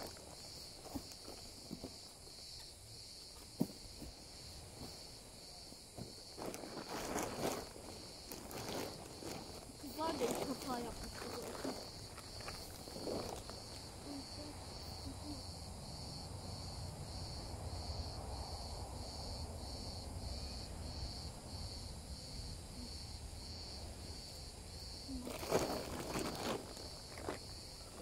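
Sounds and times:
insect chirping: 0.0 - 28.0
tent fabric rustling: 6.0 - 15.1, 25.1 - 28.0.

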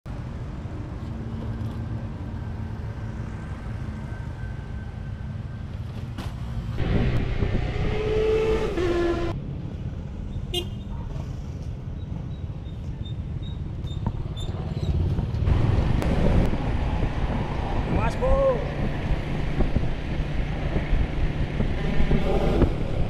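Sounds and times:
scooter engine and road rumble: 0.1 - 18.0, 18.6 - 23.0.

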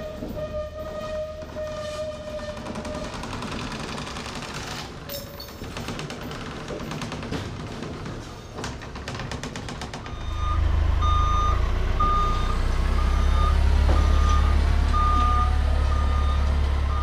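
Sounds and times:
forklift engine running: 9.9 - 17.0
reversing alarm beeping: 10.1 - 17.0.

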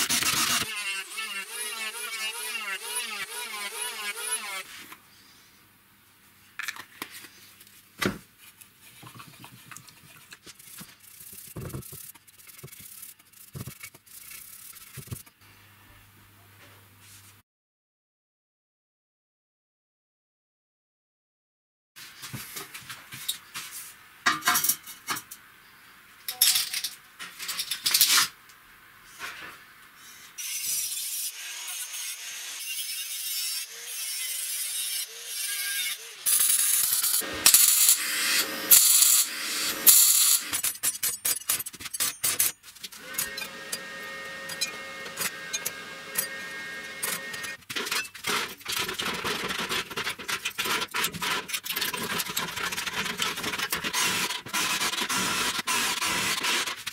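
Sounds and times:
welding crackle: 36.3 - 40.6
tin snips cutting steel sheet: 36.3 - 42.5, 43.1 - 48.0.

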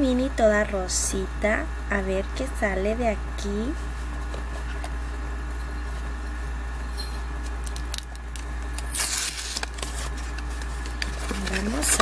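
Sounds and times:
low electrical hum: 0.0 - 12.0
cardboard scraping: 9.0 - 12.0.

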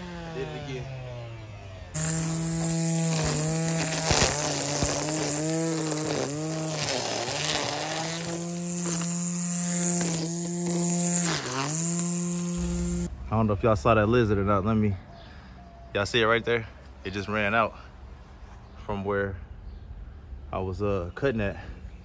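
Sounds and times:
string trimmer motor whine: 0.0 - 13.1
trimmer line hissing: 1.9 - 13.1.

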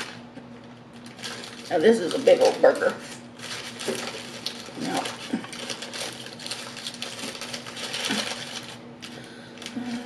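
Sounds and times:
paper wrapper crinkling: 0.0 - 10.0.

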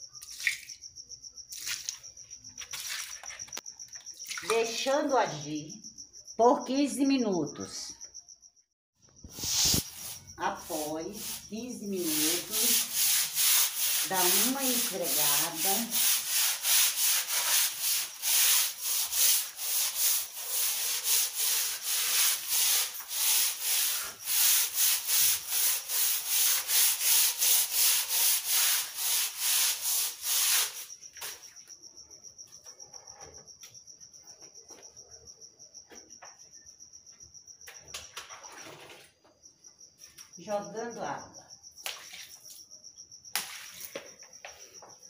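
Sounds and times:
brush scrubbing wet concrete floor: 1.5 - 3.6, 9.3 - 31.5, 41.9 - 42.6, 43.4 - 44.3.

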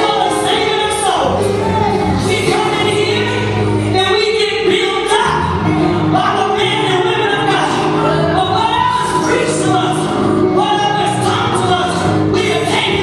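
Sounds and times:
gospel singing: 0.0 - 13.0
held accompaniment chords: 0.0 - 13.0.

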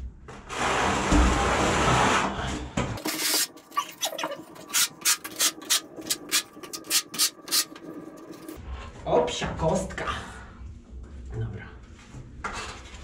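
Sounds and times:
trowel scraping adhesive on wall: 0.5 - 8.6.

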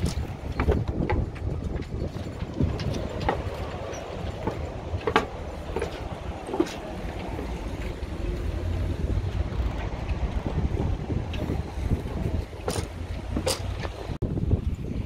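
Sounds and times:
sharp knocks and clicks: 0.0 - 7.2
wind rumbling on microphone: 0.0 - 15.0.

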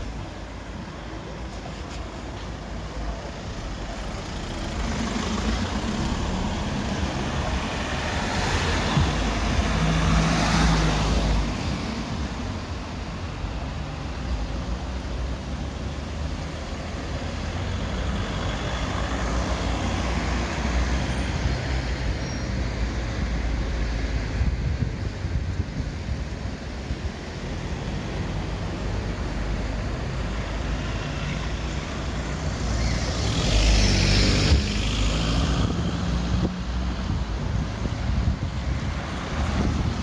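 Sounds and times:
street traffic hum: 0.0 - 40.0.

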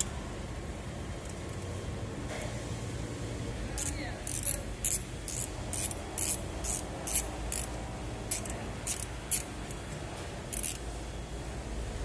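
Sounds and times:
pneumatic ratchet wrench hissing: 3.8 - 9.8, 10.5 - 10.8.

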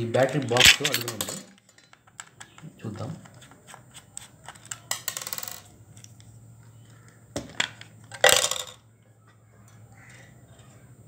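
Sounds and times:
metallic clatter of screw dropping: 0.5 - 2.3, 4.6 - 5.7.

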